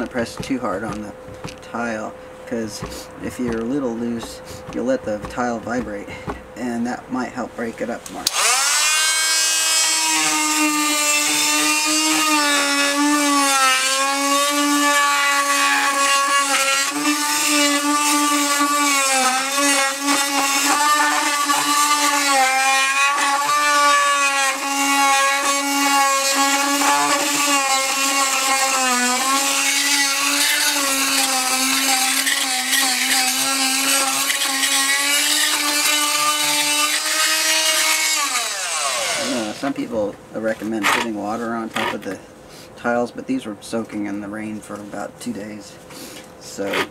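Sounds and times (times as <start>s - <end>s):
oscillating multi-tool buzzing: 8.2s - 39.6s.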